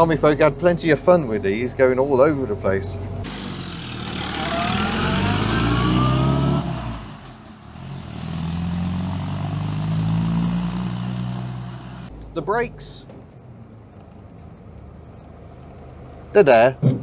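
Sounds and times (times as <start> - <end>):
engine accelerating: 3.2 - 12.1.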